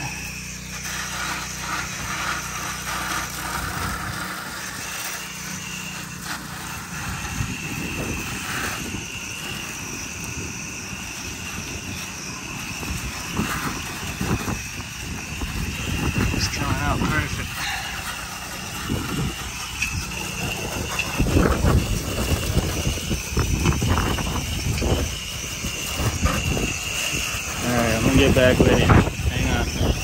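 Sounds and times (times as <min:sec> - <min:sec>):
pressure washer water spray: 0:00.0 - 0:30.0.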